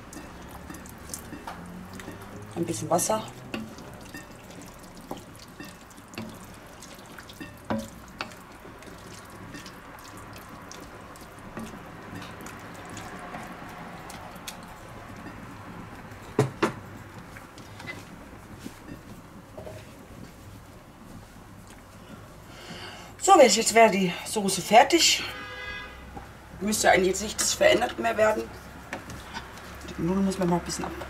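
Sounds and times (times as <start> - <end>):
spatula knocking pot: 0.0 - 2.4, 3.3 - 17.3
sauce bubbling in a pot: 0.0 - 31.0.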